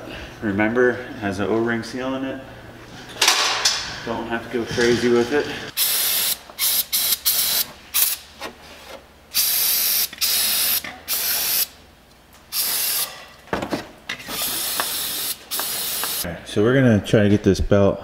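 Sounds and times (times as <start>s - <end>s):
aerosol spray hissing: 5.8s - 8.2s, 9.4s - 11.7s, 12.5s - 13.1s, 14.4s - 16.2s.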